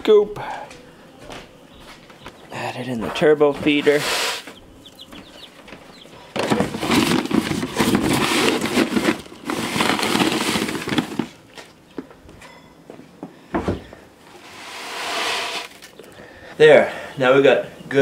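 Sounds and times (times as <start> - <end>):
chicks peeping: 0.2 - 8.5
plastic bag rustling: 5.6 - 11.6, 14.4 - 16.1
scoop digging into feed: 14.3 - 16.0.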